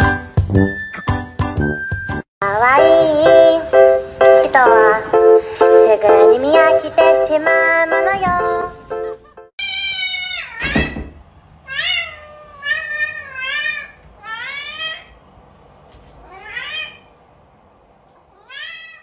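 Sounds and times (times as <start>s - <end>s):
cat meowing: 9.6s - 10.9s, 11.7s - 15.1s, 16.2s - 17.1s, 18.3s - 19.0s.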